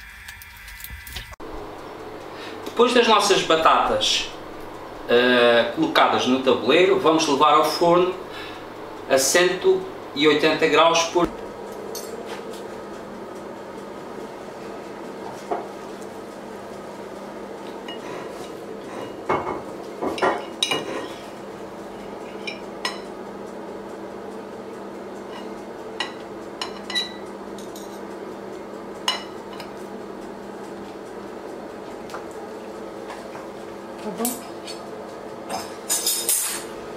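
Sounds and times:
faint steady hum: 0:00.0 - 0:33.1
cutlery clinking on plate: 0:35.5 - 0:36.7.

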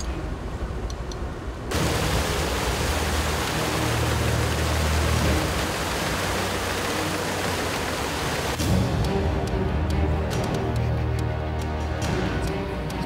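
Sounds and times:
water spray from tire: 0:01.7 - 0:08.6.

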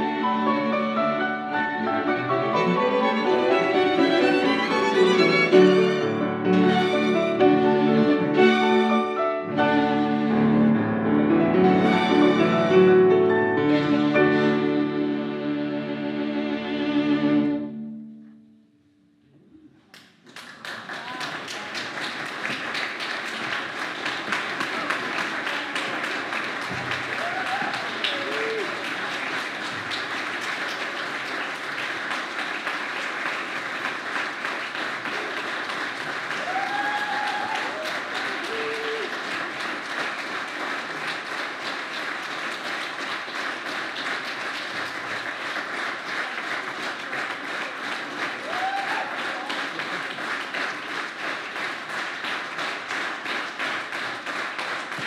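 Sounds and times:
audience applauding: 0:02.2 - 0:09.3, 0:11.8 - 0:13.0, 0:19.9 - 0:55.0.

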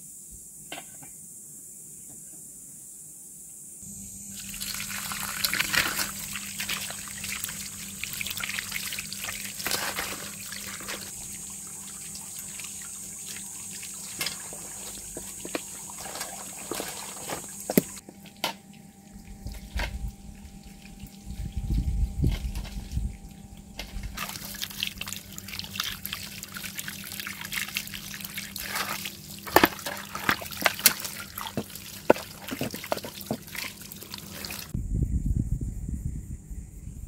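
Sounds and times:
hose water splashing on meat: 0:04.2 - 0:18.0, 0:19.2 - 0:34.8
low rumble: 0:19.2 - 0:24.2, 0:34.7 - 0:37.0.

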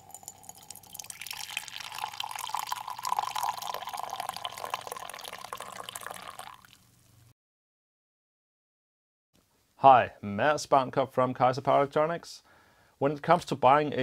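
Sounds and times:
coffee pouring into a ceramic mug: 0:00.0 - 0:06.8.

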